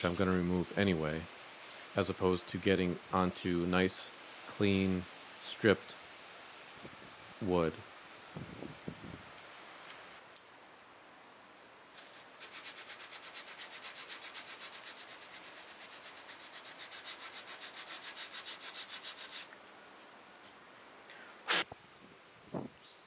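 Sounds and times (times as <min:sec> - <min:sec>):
hand sanding wood: 0:12.0 - 0:19.5.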